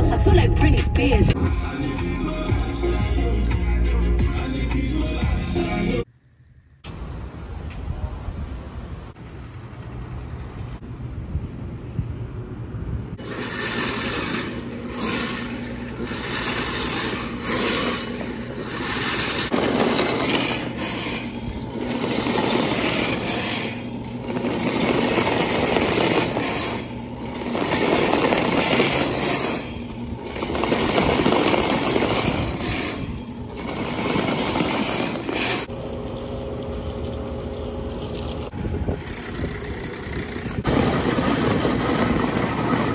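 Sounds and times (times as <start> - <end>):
steel cable rattling against metal: 13.2 - 35.7, 38.7 - 42.9
drain-cleaning machine running: 13.2 - 42.9.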